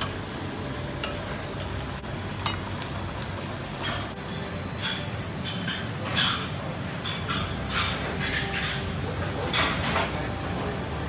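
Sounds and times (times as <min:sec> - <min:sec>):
oil sizzling deep-frying: 0:00.0 - 0:11.0
spoon clinking on pot: 0:03.8 - 0:10.9
low hum: 0:06.8 - 0:11.0.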